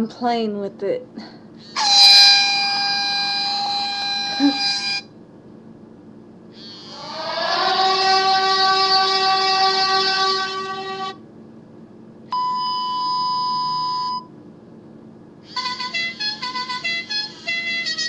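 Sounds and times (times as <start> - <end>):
air horn blast: 1.8 - 5.0, 15.5 - 18.0
steady horn tone: 15.5 - 18.0
tune of short horn notes: 15.5 - 18.0.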